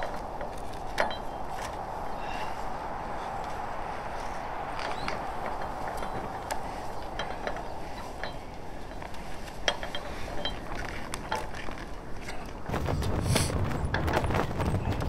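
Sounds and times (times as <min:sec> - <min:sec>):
clicks and clinks of kite hardware: 0:00.0 - 0:01.9, 0:04.4 - 0:12.7
deep rustling noise: 0:00.0 - 0:15.0
wind hiss: 0:00.0 - 0:15.0.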